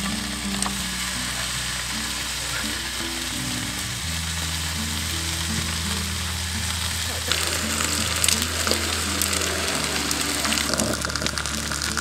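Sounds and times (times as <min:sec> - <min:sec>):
steaks sizzling in a frying pan: 0:04.2 - 0:12.0.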